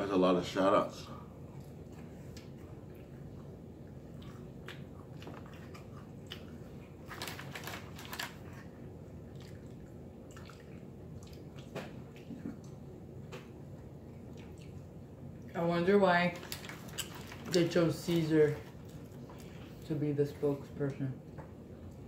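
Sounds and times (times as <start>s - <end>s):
low background hum: 0.0s - 22.0s
man chewing: 1.3s - 15.5s.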